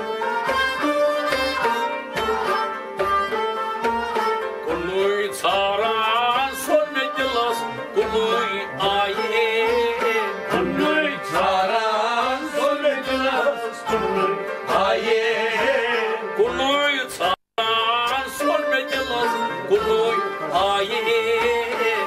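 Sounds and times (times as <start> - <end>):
plucked string instrument: 0.0 - 22.0
man singing: 4.6 - 22.0
clay pot drum beat: 10.5 - 11.7.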